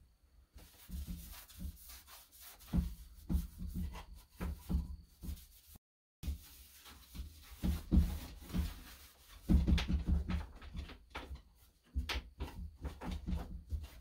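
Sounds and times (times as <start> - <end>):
wooden knocks and bumps: 7.1 - 14.0.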